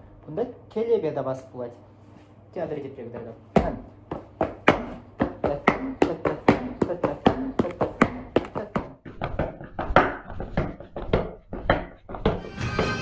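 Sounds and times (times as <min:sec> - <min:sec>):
boots stamping on hard floor: 0:03.6 - 0:13.0.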